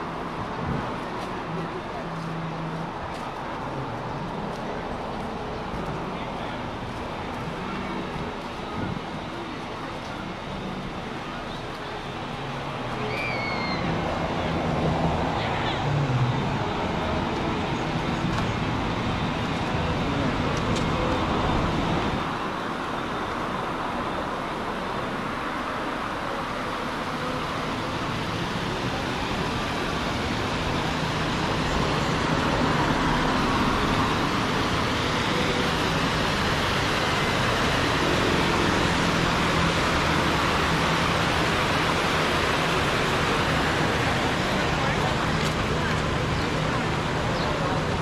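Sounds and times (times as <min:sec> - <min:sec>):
passing road traffic: 0:00.0 - 0:48.0
vehicle engines rumbling: 0:00.0 - 0:48.0.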